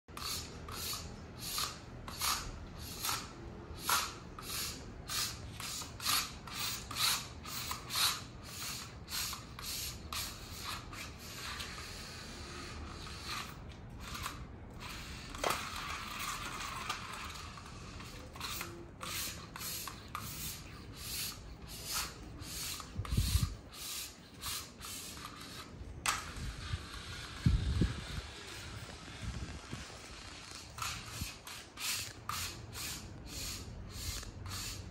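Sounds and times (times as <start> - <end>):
diabolo string zipping: 15.0 - 34.9.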